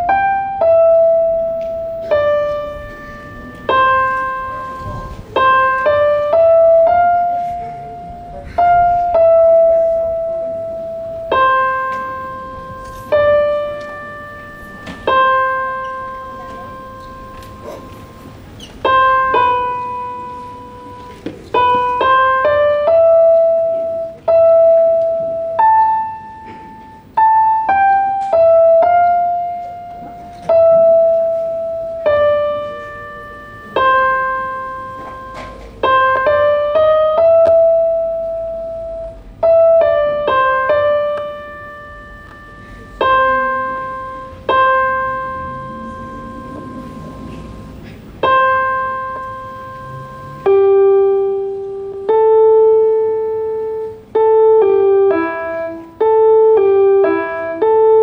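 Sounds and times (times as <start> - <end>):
slow piano melody: 0.0 - 58.0.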